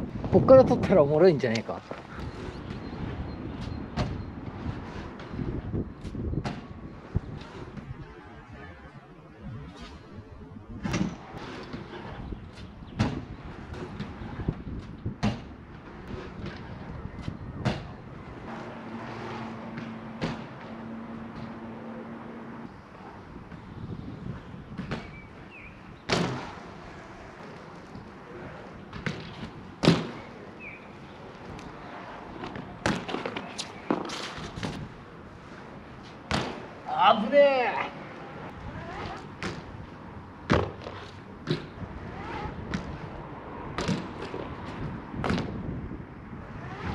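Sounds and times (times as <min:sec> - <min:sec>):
bike tyres rolling on concrete: 0:00.0 - 0:46.9
bike wheels landing thumps: 0:03.6 - 0:04.2, 0:10.7 - 0:18.0, 0:19.7 - 0:20.7, 0:24.7 - 0:25.3, 0:26.0 - 0:26.6, 0:28.9 - 0:30.8, 0:32.4 - 0:34.9, 0:36.2 - 0:36.7, 0:39.1 - 0:39.8, 0:40.4 - 0:43.1, 0:43.7 - 0:45.7.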